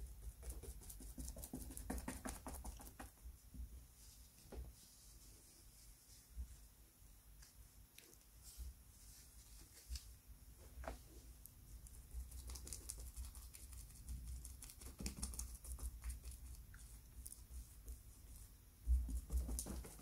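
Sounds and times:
paintbrush dabbing and scratching: 0.0s - 6.7s, 8.4s - 10.2s, 10.9s - 20.0s.

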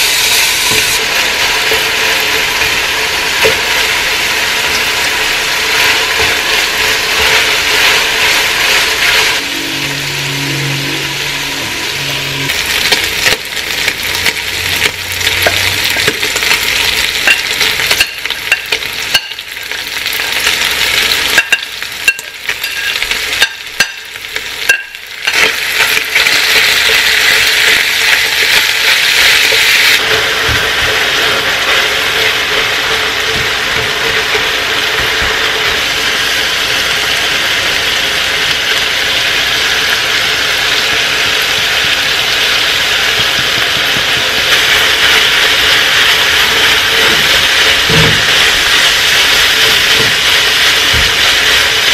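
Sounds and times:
meat sizzling in a pot: 0.0s - 51.9s.

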